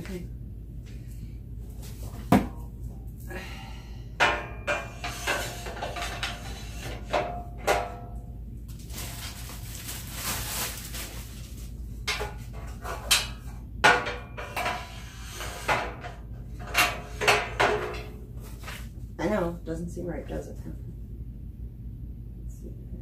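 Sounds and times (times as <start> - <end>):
metal baskets clattering on frame: 4.2 - 8.1.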